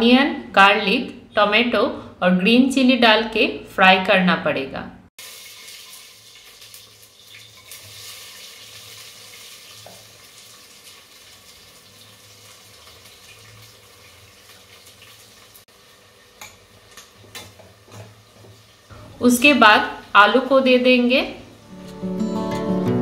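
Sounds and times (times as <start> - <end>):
vegetables sizzling in oil: 5.2 - 21.7.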